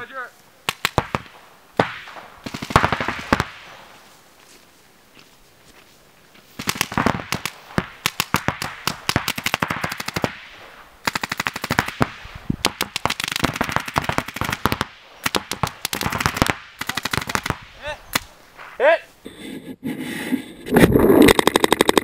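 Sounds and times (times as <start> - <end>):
paintball markers firing: 0.6 - 3.7, 6.6 - 10.4, 11.1 - 18.4.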